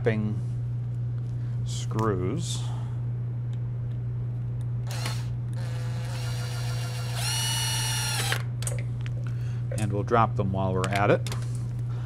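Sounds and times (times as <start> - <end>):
steady low hum: 0.0 - 12.0
impact driver motor whine: 4.8 - 8.5.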